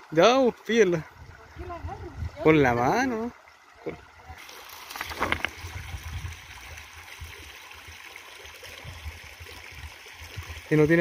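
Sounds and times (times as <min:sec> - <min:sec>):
river water trickling and splashing: 0:00.0 - 0:11.0
wind rumbling on microphone: 0:01.1 - 0:03.0, 0:05.0 - 0:07.5, 0:08.7 - 0:10.7.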